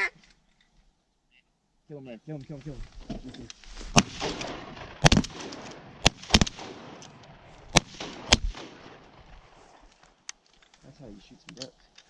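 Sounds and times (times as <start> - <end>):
shotguns firing: 3.9 - 9.6.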